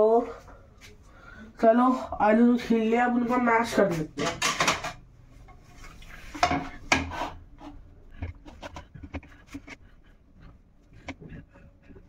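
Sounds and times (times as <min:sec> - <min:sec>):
kitchenware knocks and clicks: 0:04.2 - 0:05.1, 0:06.4 - 0:07.1.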